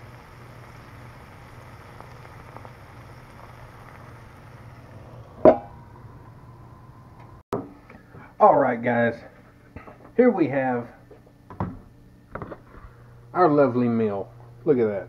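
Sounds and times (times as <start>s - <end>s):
meat and eggs sizzling in skillet: 0.0s - 6.5s.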